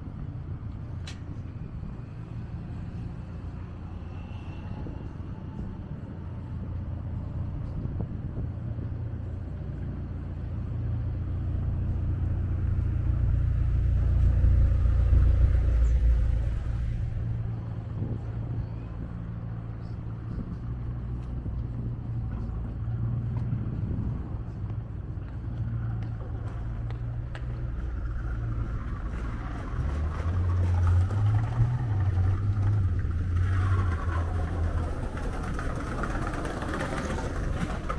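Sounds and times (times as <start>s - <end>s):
road traffic rumbling: 0.0s - 37.9s
vehicle passing close: 11.7s - 20.5s, 25.8s - 37.9s.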